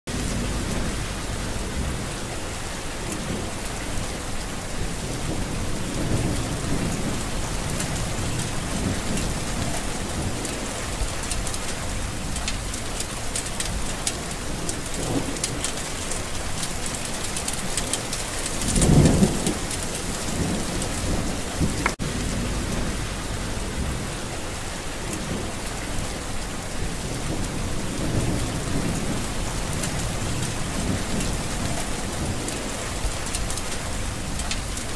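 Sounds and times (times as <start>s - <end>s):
low rumble: 0.1s - 3.7s, 20.1s - 24.6s
heavy rain falling: 0.1s - 34.9s.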